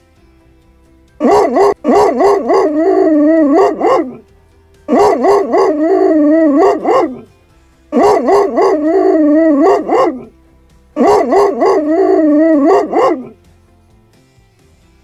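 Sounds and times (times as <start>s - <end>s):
dog barking and howling: 1.2s - 4.3s, 4.9s - 7.3s, 7.9s - 10.4s, 11.0s - 13.4s.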